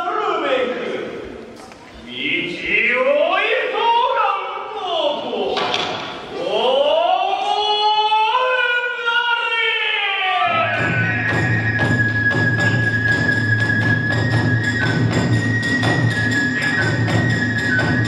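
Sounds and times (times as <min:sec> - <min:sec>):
person chanting: 0:06.3 - 0:11.8
bamboo flute high notes: 0:10.4 - 0:18.0.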